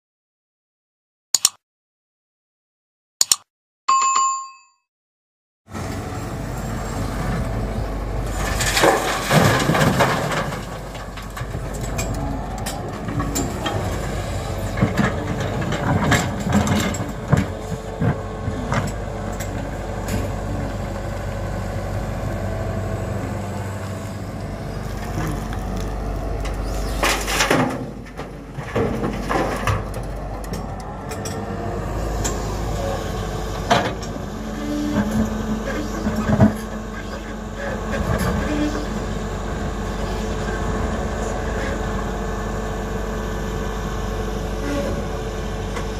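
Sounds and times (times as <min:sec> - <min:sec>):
excavator running: 0:05.7 - 0:45.9
soil and stones crunching in bucket: 0:23.8 - 0:30.4.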